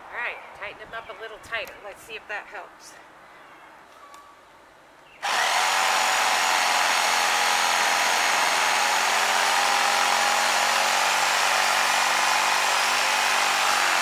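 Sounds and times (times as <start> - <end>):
electric jigsaw cutting wood: 5.2 - 14.0.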